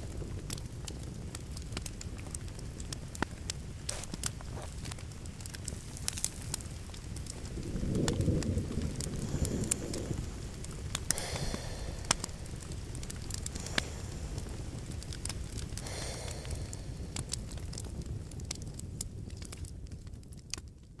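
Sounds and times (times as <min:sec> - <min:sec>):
fire hissing: 0:00.0 - 0:19.0
campfire crackling: 0:00.0 - 0:21.0.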